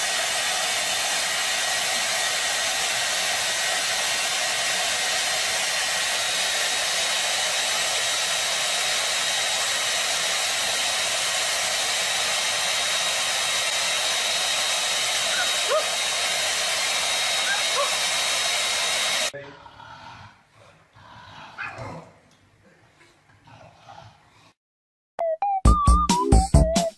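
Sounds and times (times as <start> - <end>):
hair dryer running: 0.0 - 19.3.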